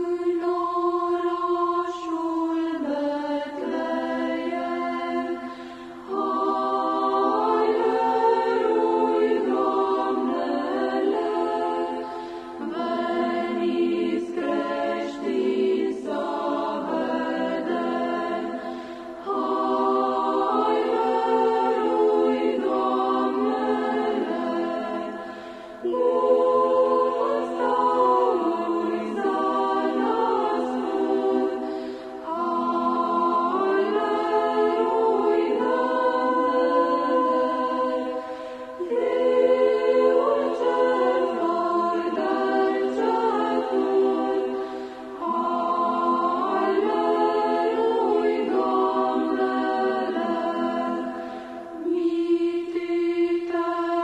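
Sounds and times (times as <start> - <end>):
choir singing a carol: 0.0 - 54.0.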